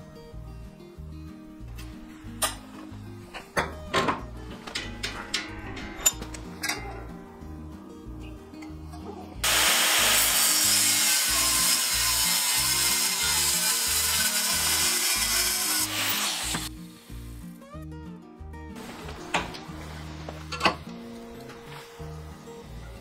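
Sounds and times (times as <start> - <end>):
background music: 0.0 - 23.0
angle grinder cutting steel: 9.4 - 16.7.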